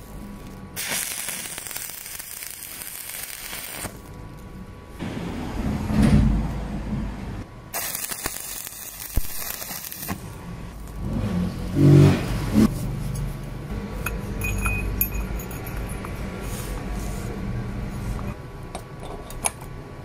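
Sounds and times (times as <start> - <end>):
arc welding crackling: 0.0 - 4.7, 7.7 - 12.4
light metal clinks: 14.0 - 16.2.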